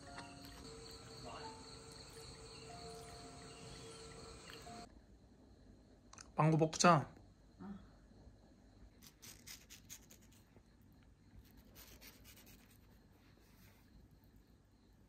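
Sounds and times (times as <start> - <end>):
faint scratching and rubbing: 11.4 - 14.4.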